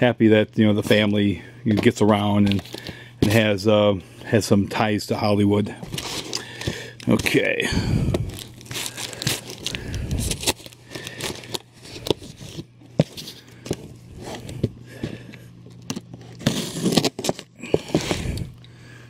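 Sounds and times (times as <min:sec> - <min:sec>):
knife slitting packing tape: 0:16.3 - 0:18.2.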